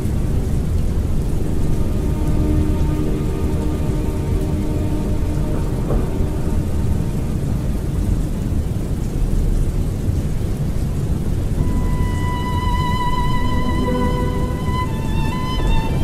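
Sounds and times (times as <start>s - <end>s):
heavy rain: 0.0s - 16.0s
rolling thunder: 0.0s - 16.0s
sustained music notes: 0.2s - 8.6s, 11.6s - 16.0s.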